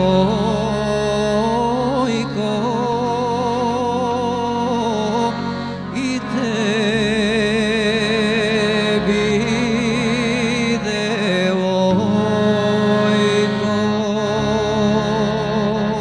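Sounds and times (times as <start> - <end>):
folk music with vibrato melody: 0.0 - 16.0.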